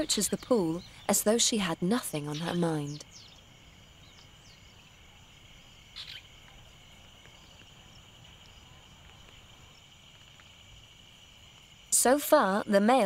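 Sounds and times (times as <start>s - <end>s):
insect chorus chirring: 0.0s - 13.0s
short insect call: 0.0s - 13.0s.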